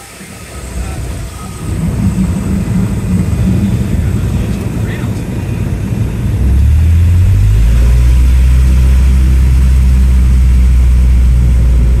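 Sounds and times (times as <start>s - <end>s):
aircraft engine drone: 0.0s - 12.0s.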